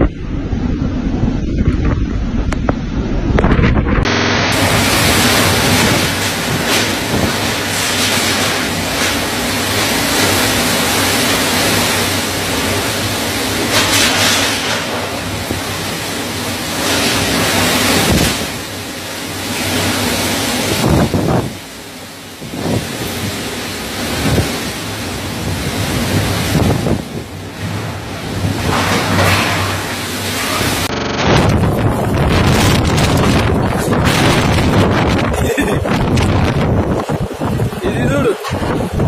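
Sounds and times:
wind buffeting microphone: 0.0s - 8.6s, 20.6s - 21.7s, 22.4s - 29.2s, 30.7s - 39.0s
driving rain: 0.0s - 39.0s
storm wind gusting: 0.0s - 39.0s.

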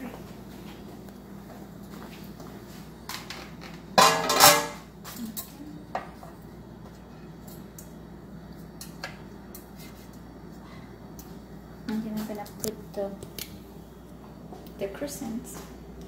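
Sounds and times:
dishes and utensils clattering: 4.0s - 6.3s.

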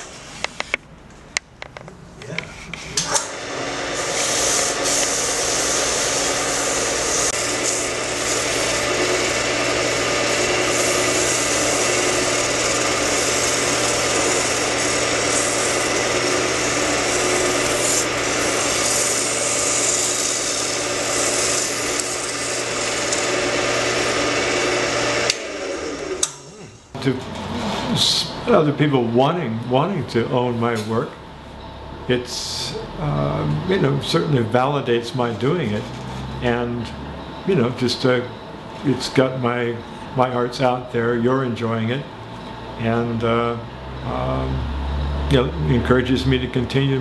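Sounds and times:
lathe motor hum: 2.7s - 27.9s, 39.8s - 45.8s
sanding hiss: 4.0s - 9.4s, 10.3s - 23.3s.

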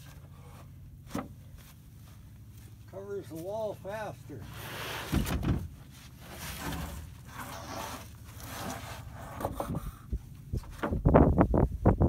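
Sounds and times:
wooden boards rustling: 0.0s - 2.8s, 4.4s - 11.2s
shuffling footsteps: 0.0s - 4.3s.

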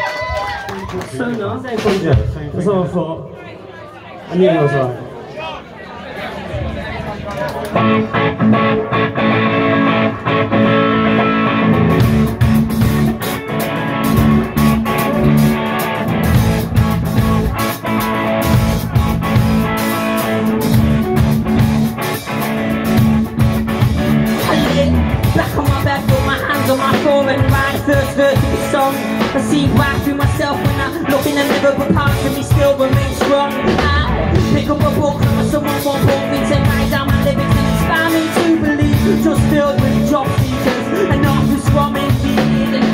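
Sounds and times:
live rock band playing: 0.0s - 3.0s, 7.5s - 42.9s
person singing into microphone: 24.4s - 42.9s.

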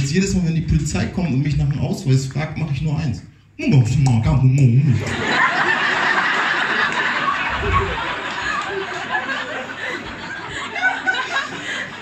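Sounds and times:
audience laughing: 5.0s - 12.0s.

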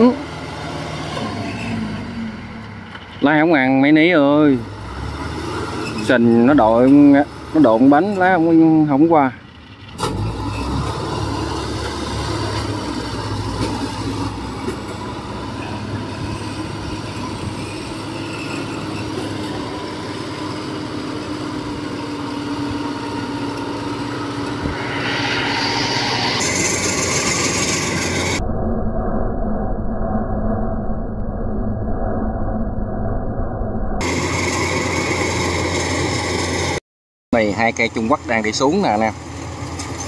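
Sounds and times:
tracked vehicle engine running: 0.0s - 28.4s, 34.0s - 36.8s, 37.4s - 40.0s.

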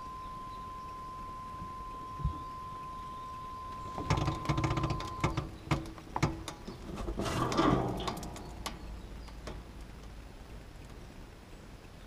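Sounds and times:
sharp clicks and knocks from chassis: 3.9s - 10.2s.

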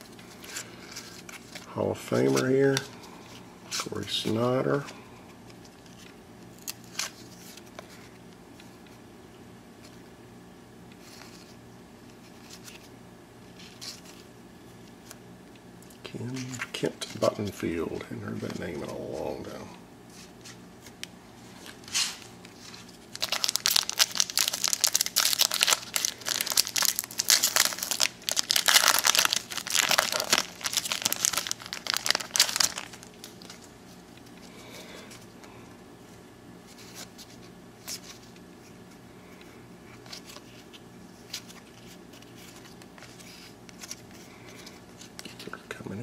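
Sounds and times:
plastic wrapper crinkling and tearing: 21.6s - 33.7s.

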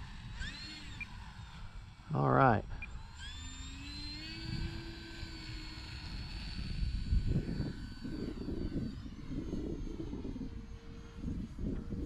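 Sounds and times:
model plane motor whine: 0.0s - 12.0s
wind buffeting microphone: 4.2s - 12.0s.

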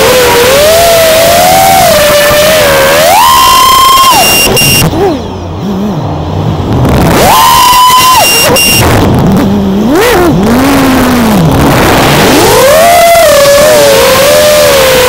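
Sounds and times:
drone motors whining: 0.0s - 15.0s
short high beep: 3.8s - 4.9s, 8.0s - 8.9s.

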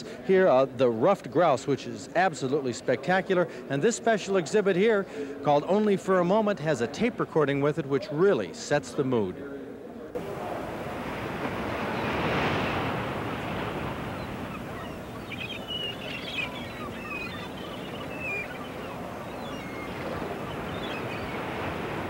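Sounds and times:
surf washing in: 10.2s - 22.0s
waterfowl calls: 11.7s - 22.0s.

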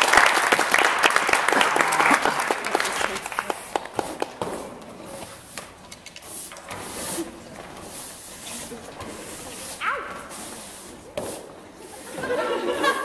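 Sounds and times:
audience applauding: 0.0s - 4.4s.

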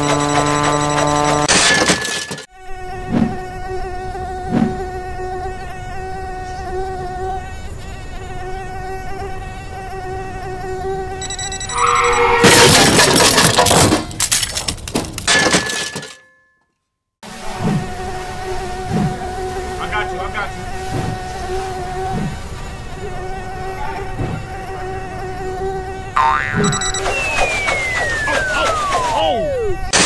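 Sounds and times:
drone propellers buzzing: 0.0s - 7.6s, 9.7s - 13.3s, 17.3s - 30.0s.

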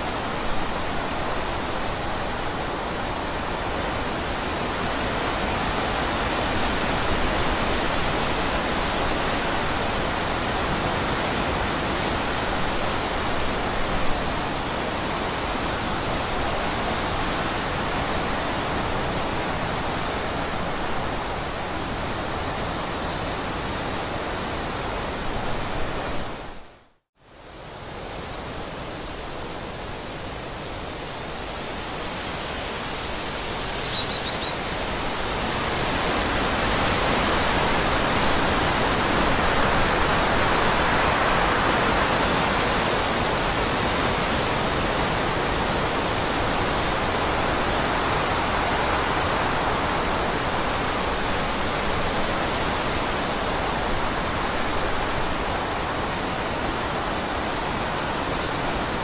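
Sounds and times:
bird chirps: 29.0s - 29.7s, 33.8s - 34.6s
steady rushing noise: 29.8s - 59.0s.

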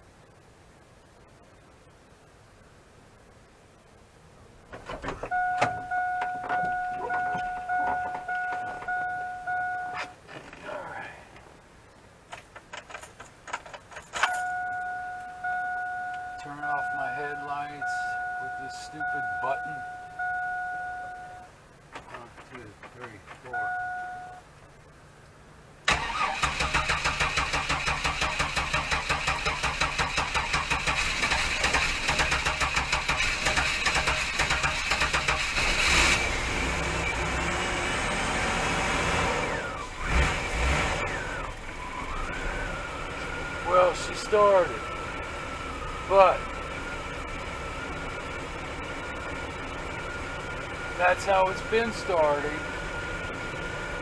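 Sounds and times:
two-tone warning chime: 5.3s - 10.1s, 14.3s - 21.5s, 23.5s - 24.4s
keys rattling in ignition: 12.4s - 14.6s
van engine cranking on starter: 25.8s - 54.0s.

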